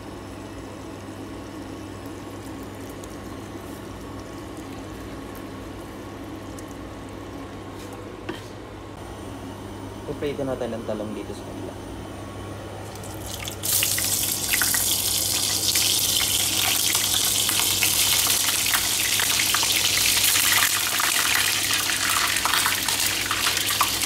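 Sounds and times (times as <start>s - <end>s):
oil crackling: 12.9s - 24.0s
vegetables sizzling in oil: 13.0s - 24.0s.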